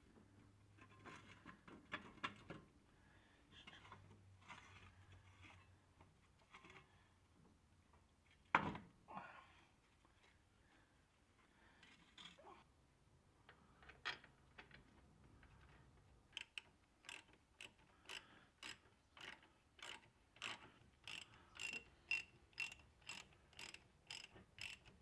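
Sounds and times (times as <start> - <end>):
hand ratchet clicking: 16.4 - 25.0.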